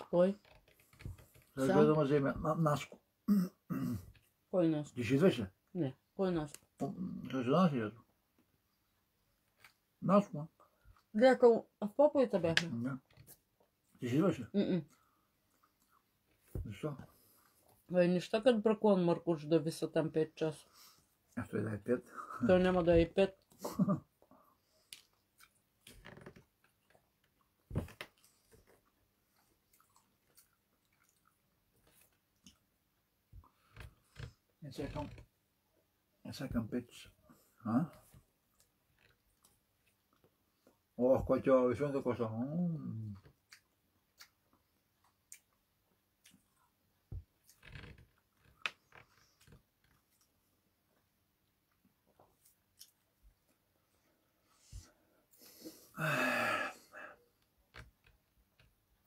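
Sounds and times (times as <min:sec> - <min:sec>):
man chewing: 0:15.0 - 0:16.4, 0:24.8 - 0:25.9, 0:26.5 - 0:32.7, 0:43.3 - 0:46.8, 0:51.7 - 0:53.6.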